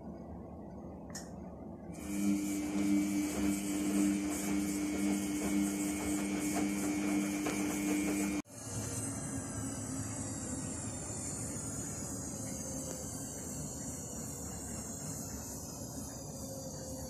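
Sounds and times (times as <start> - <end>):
steady mechanical hum: 0.0 - 17.0
hiss: 8.4 - 17.0.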